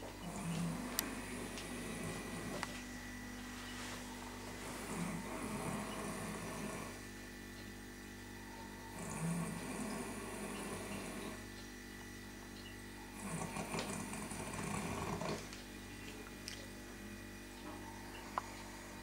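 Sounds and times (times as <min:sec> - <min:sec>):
man snoring: 0:00.3 - 0:02.7, 0:04.5 - 0:07.0, 0:08.9 - 0:11.4, 0:13.1 - 0:15.4.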